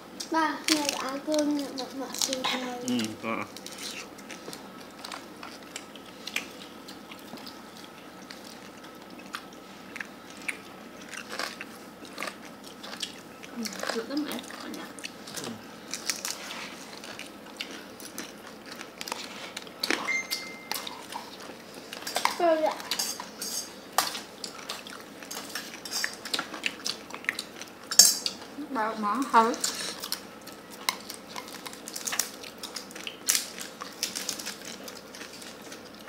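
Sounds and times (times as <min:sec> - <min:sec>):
utensils clicking on bowls: 0:22.0 - 0:24.6, 0:27.9 - 0:28.4.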